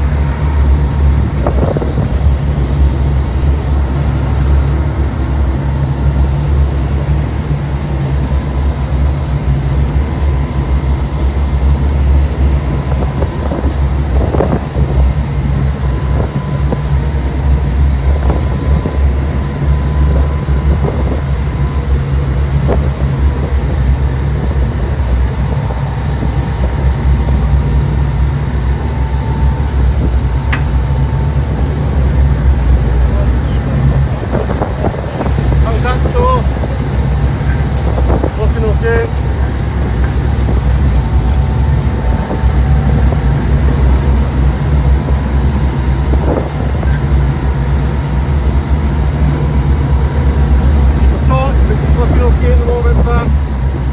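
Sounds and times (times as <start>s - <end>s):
boat diesel engines droning: 0.0s - 53.9s
wind and water rushing: 0.0s - 53.9s.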